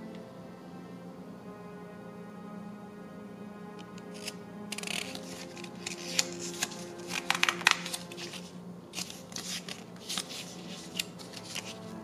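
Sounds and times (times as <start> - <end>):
paper pages rustling: 4.2 - 11.9
sharp paper snaps: 4.8 - 8.4.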